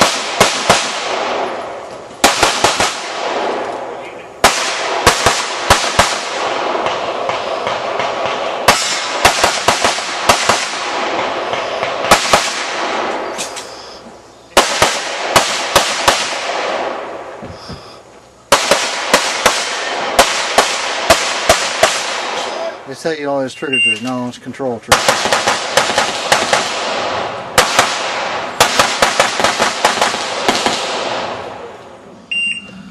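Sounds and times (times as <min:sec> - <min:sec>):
gunshots with echo: 0:00.0 - 0:13.5, 0:14.5 - 0:17.2, 0:18.5 - 0:22.8, 0:24.9 - 0:31.7.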